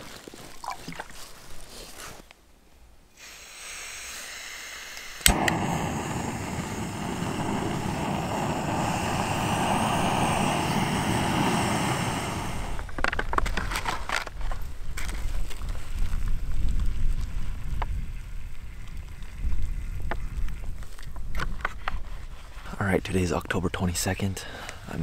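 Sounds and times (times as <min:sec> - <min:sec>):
gas hissing: 0:03.2 - 0:13.0
stove burner flame rushing: 0:03.2 - 0:13.0
igniter click: 0:05.2 - 0:05.7.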